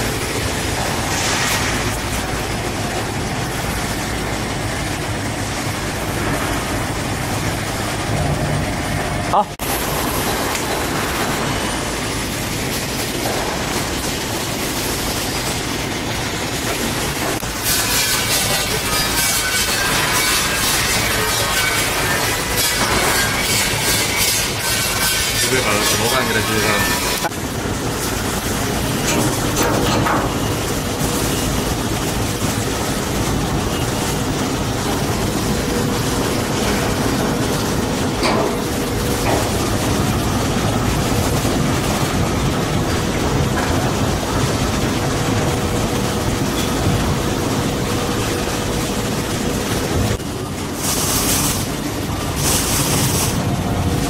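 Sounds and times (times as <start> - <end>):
faint constant hum: 0.0 - 54.0
machinery rumble and hiss: 0.0 - 54.0.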